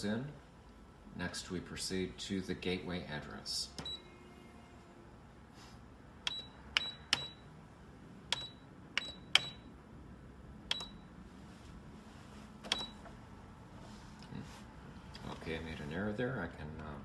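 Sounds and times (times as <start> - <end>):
key press clicks: 6.2 - 7.4, 8.3 - 9.6, 10.7 - 11.0, 12.7 - 13.0.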